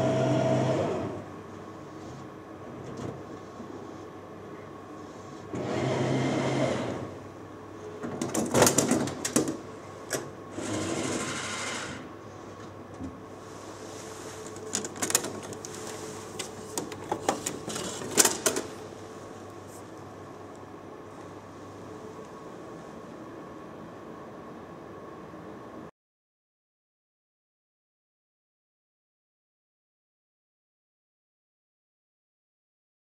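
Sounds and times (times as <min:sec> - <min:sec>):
vending machine motor whirring: 0:00.0 - 0:01.4, 0:05.3 - 0:12.2, 0:14.0 - 0:19.2.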